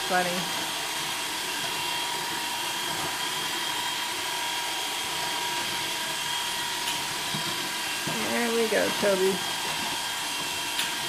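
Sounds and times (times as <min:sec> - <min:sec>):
robot vacuum motors whining: 0:00.0 - 0:11.0.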